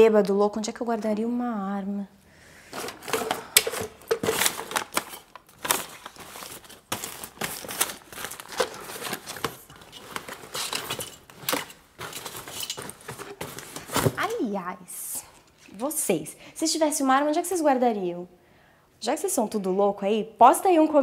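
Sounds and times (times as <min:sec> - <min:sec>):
clothes and bags rustling: 0:02.6 - 0:14.5
objects knocking: 0:02.7 - 0:05.3, 0:08.6 - 0:14.3.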